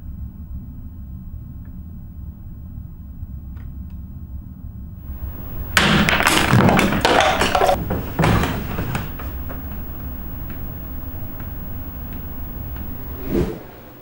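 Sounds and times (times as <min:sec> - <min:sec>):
steady low hum: 0:05.0 - 0:14.0
clatter of thuds and knocks: 0:05.1 - 0:13.2.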